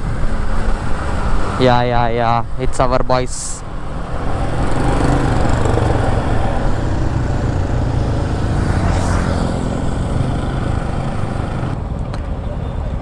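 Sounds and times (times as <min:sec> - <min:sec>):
road and traffic noise: 0:00.0 - 0:13.0
motorcycle engine running: 0:03.6 - 0:11.8.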